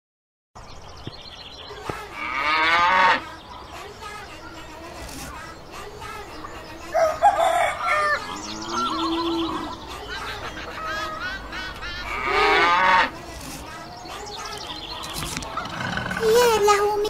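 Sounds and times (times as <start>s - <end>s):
chickens clucking: 1.6s - 17.0s
rooster crowing: 7.0s - 9.7s.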